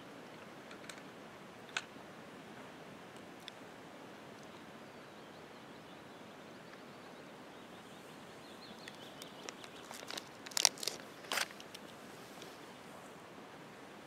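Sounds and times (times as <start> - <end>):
outdoor background: 0.0 - 14.0
crunching and rustling: 8.8 - 12.6.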